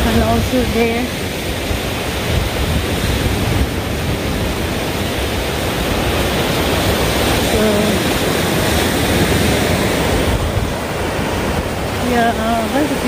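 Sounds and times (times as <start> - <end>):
surf on a sandy beach: 0.0 - 13.0
wind buffeting microphone: 0.0 - 13.0.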